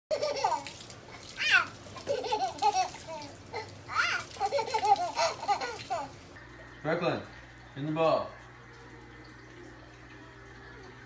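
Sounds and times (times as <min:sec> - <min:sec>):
baby squealing and babbling: 0:01.4 - 0:01.8.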